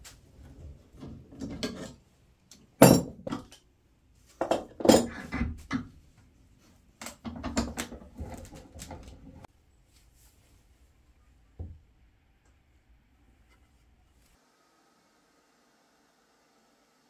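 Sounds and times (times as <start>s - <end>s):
metal clamps clanking on wood: 1.4s - 3.6s.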